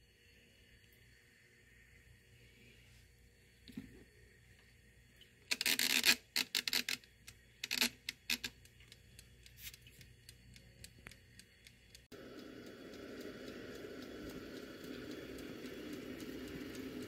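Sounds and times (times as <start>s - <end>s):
timer ticking: 10.0s - 17.0s.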